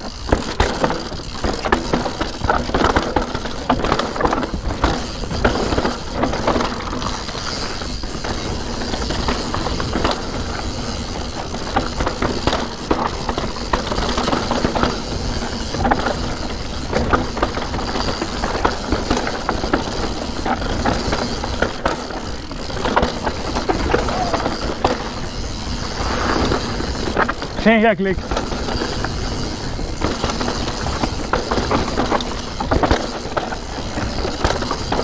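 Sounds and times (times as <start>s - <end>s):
bike rattling over stones: 0.0s - 35.0s
mountain bike tyre noise: 0.0s - 35.0s.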